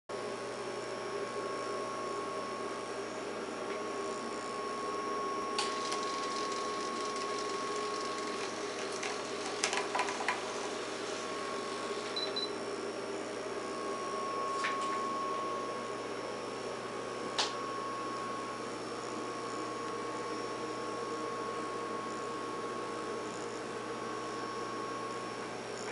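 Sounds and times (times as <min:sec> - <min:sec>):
sharp mechanical clicks: 0:05.6 - 0:10.4
small motor whirring: 0:05.6 - 0:12.2.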